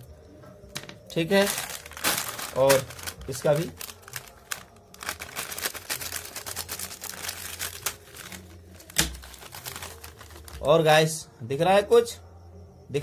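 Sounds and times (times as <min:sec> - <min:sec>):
foil snack packet crinkling: 0:01.2 - 0:10.7.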